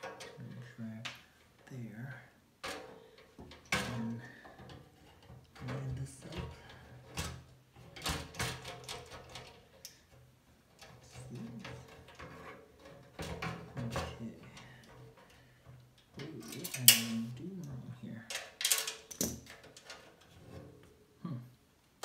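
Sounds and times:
screws and metal clicking: 16.0s - 17.3s.

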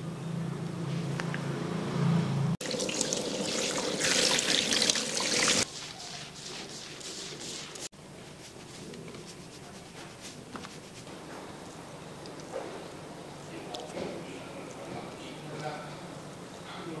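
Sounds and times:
shower head spraying water: 2.6s - 5.7s.

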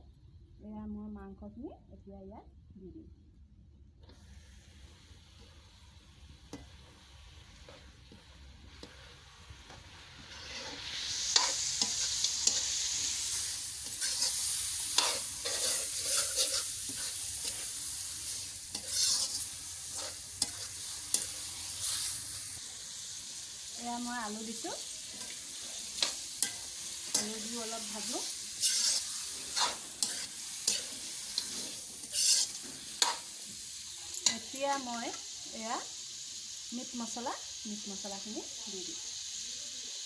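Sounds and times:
chicken frying in hot oil: 4.1s - 40.0s
metal spoon scraping wok: 7.6s - 22.4s, 25.0s - 33.4s.

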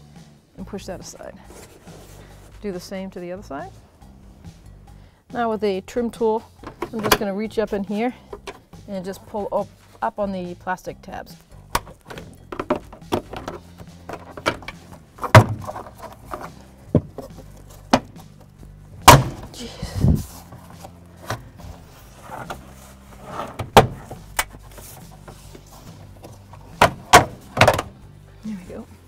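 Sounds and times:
plastic panel snaps: 11.7s - 16.0s, 26.8s - 27.9s.

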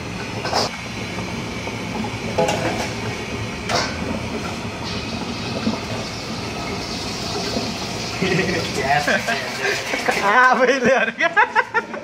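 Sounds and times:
egg sizzling in oil: 0.0s - 10.4s
gas burner rushing: 0.0s - 11.0s.

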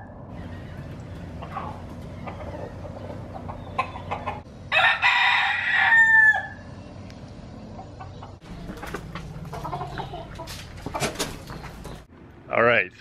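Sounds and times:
rooster crowing: 4.7s - 6.7s.

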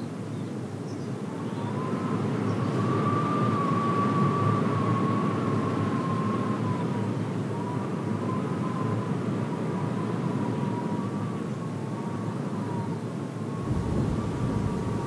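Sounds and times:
thin wind whistle: 1.1s - 15.0s
wind rumbling: 13.5s - 15.0s.

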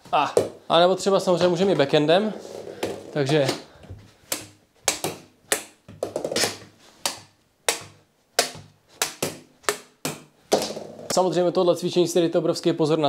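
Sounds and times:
stick tapping plastic ball: 4.3s - 11.2s.

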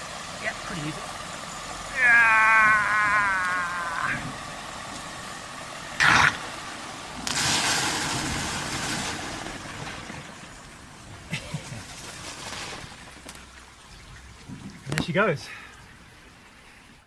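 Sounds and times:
wavering whine: 0.0s - 7.3s
splashing water rushing: 0.0s - 17.0s.

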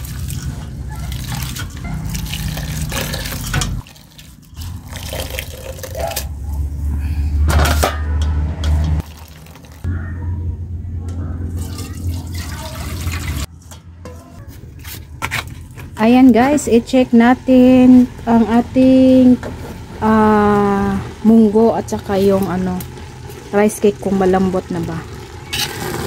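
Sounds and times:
low hum: 9.9s - 12.3s.

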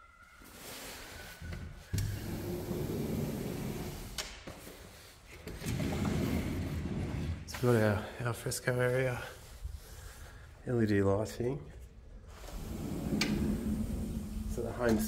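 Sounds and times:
sliding glass door rolling: 1.9s - 4.2s, 5.5s - 8.0s, 12.3s - 15.0s.

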